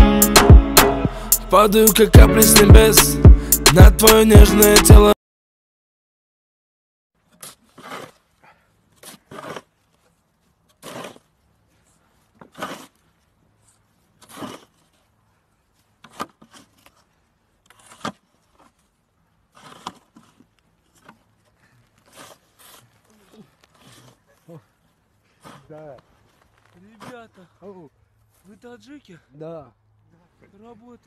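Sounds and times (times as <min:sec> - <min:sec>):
snow shovel scraping snow: 0:07.3 - 0:24.6, 0:25.2 - 0:27.4.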